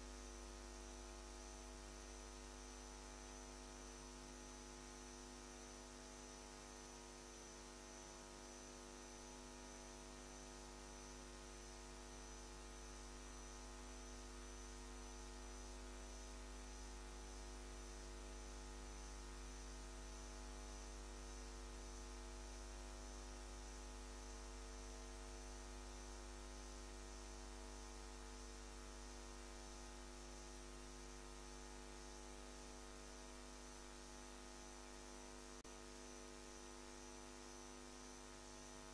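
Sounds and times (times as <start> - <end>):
electrical mains hum: 36.9 - 38.9.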